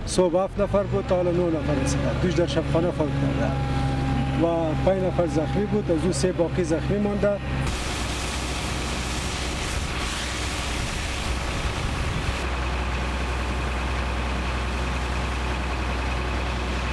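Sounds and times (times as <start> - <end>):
vehicle engine rumble: 0.0 - 16.9
hiss: 7.7 - 12.4.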